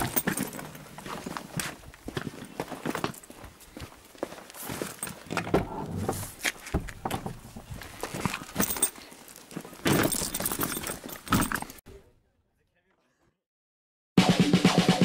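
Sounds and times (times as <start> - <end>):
footsteps on grass: 0.0 - 5.3
rustling handling noise: 0.0 - 11.8.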